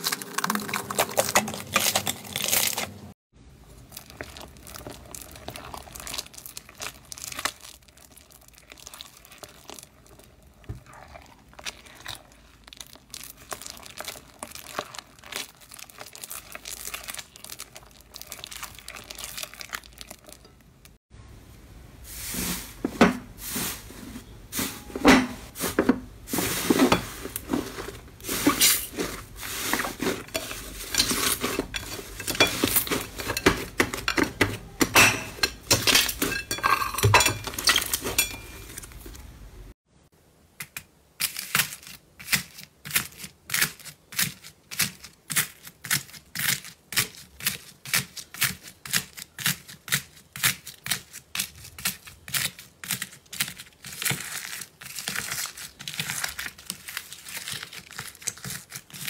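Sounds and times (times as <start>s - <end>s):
crunchy crackles of squeezed slime: 3.8s - 20.9s, 41.2s - 59.0s.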